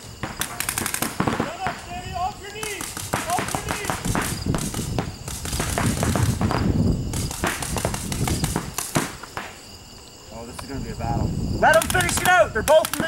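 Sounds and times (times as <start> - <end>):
paintball markers firing: 2.6 - 9.6, 11.7 - 13.0.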